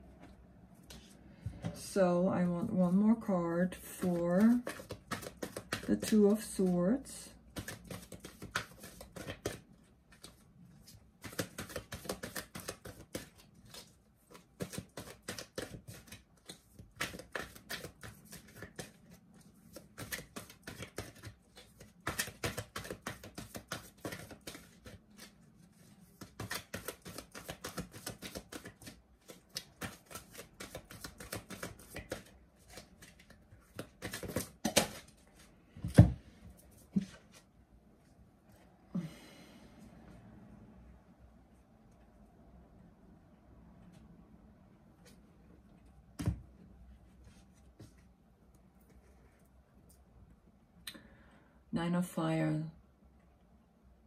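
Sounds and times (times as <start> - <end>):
cards being shuffled: 3.9 - 6.8, 7.5 - 37.4.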